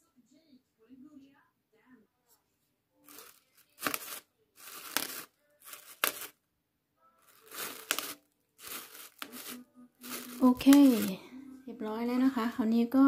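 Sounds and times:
plastic bag crinkling and tearing: 0:03.1 - 0:06.4, 0:07.2 - 0:11.2.

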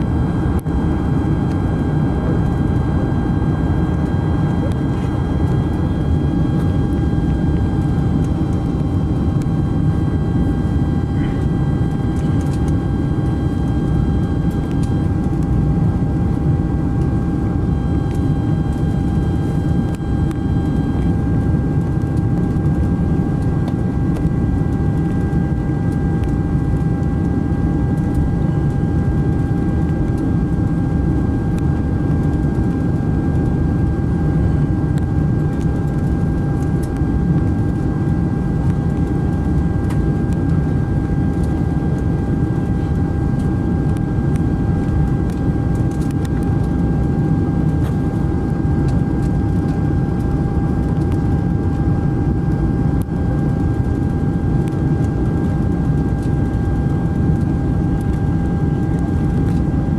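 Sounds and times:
thin high whine: 0:00.0 - 0:32.0
aircraft cabin engine roar: 0:00.0 - 0:59.9.

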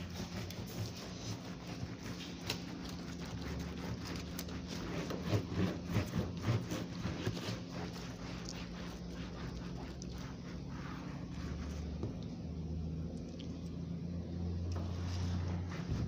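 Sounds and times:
sponge scrubbing plastic: 0:00.0 - 0:12.6, 0:14.7 - 0:16.0.

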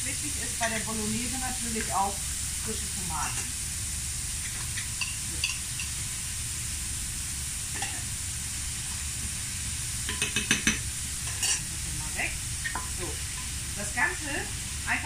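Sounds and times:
vegetables sizzling in a frying pan: 0:00.0 - 0:15.0
spoon scraping a pan: 0:04.4 - 0:06.0, 0:07.7 - 0:08.0, 0:10.0 - 0:11.7, 0:12.6 - 0:13.6.

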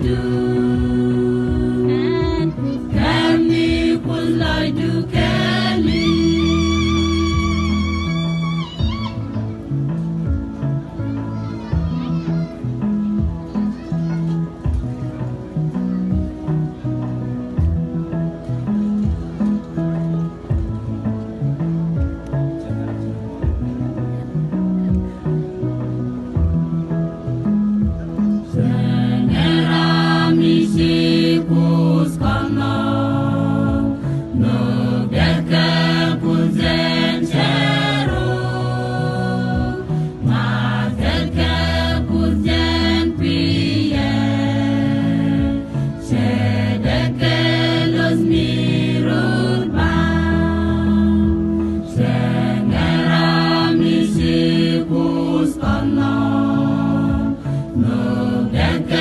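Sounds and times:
mixed choir singing: 0:00.0 - 0:08.8, 0:28.5 - 0:59.0.

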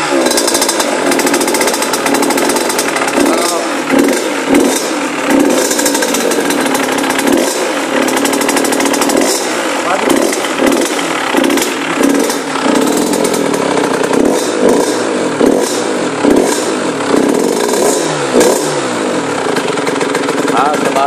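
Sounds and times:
dirt bike engine revving: 0:00.0 - 0:21.0.

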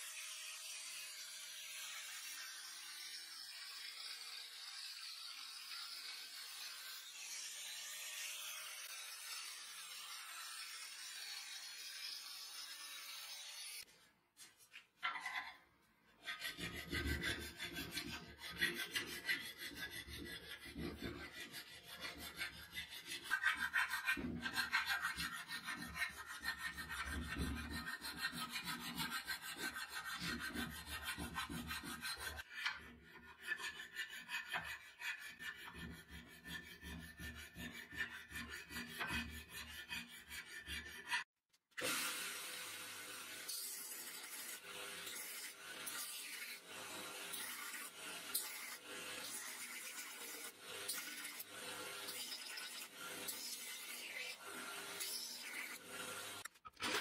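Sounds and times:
hand file rasping on metal: 0:16.1 - 0:41.3, 0:43.5 - 0:56.5.

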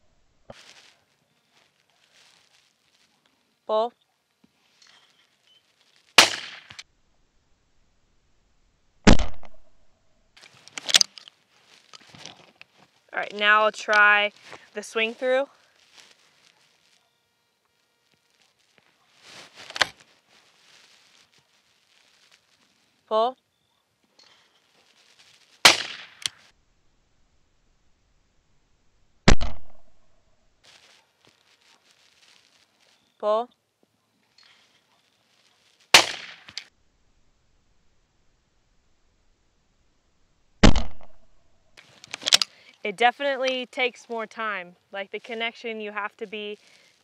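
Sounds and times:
short sharp crack: 0:06.2 - 0:06.8, 0:09.1 - 0:09.7, 0:25.6 - 0:26.4, 0:29.3 - 0:29.8, 0:36.0 - 0:36.7, 0:40.6 - 0:41.2
shotgun shot: 0:06.2 - 0:06.8, 0:09.0 - 0:09.7, 0:25.6 - 0:26.3, 0:29.3 - 0:29.9, 0:36.0 - 0:36.6, 0:40.6 - 0:41.2
gun clicks and rattles: 0:10.4 - 0:12.7, 0:36.5 - 0:36.7, 0:42.0 - 0:42.5.

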